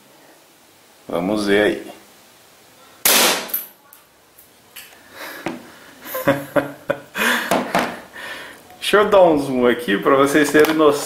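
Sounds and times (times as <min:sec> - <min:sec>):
airsoft pistol shot: 0:03.0 - 0:03.6.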